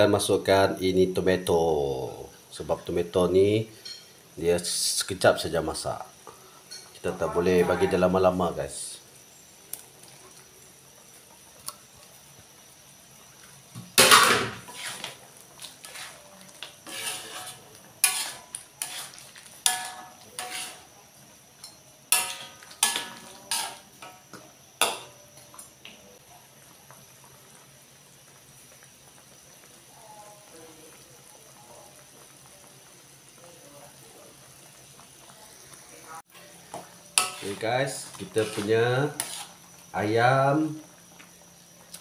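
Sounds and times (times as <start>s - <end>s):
metal ladle scraping in wok: 14.1s - 20.9s, 21.6s - 24.2s, 37.1s - 39.7s
ladle clanking against pan: 21.6s - 24.2s.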